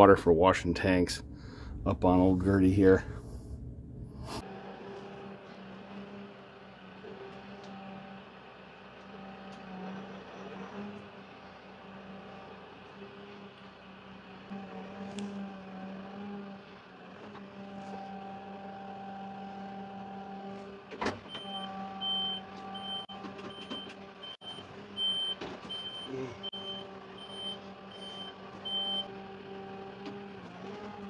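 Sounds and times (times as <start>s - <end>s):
tractor diesel engine running: 0.0s - 4.1s
backup alarm beeping: 21.3s - 29.1s.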